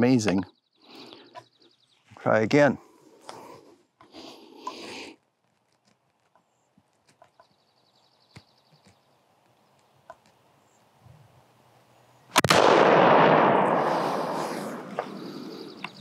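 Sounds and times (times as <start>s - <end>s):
rifle shot: 12.3s - 15.3s.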